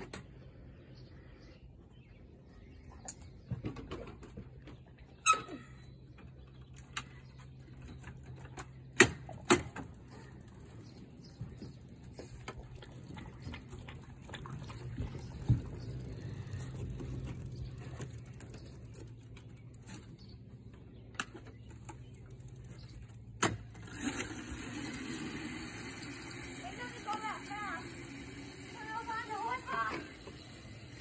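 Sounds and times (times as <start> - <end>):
dirt bike engine humming: 7.0 - 31.0.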